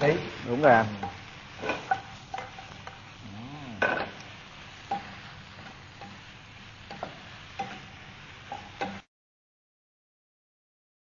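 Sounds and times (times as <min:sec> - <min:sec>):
stir-frying sizzle: 0:00.0 - 0:09.1
spatula scraping and knocking a pan: 0:00.9 - 0:03.2, 0:03.8 - 0:09.1.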